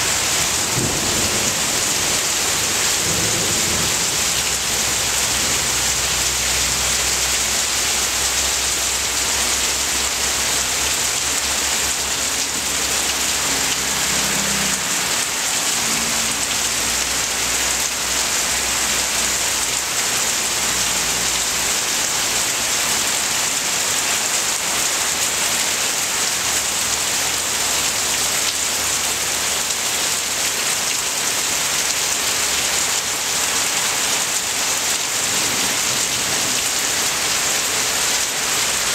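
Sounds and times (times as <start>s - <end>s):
heavy rain on leaves: 0.0s - 38.9s.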